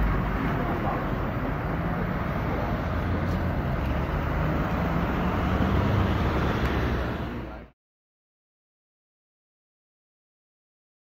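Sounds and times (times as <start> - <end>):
van engine running: 0.0 - 7.7
road traffic noise: 0.0 - 7.8.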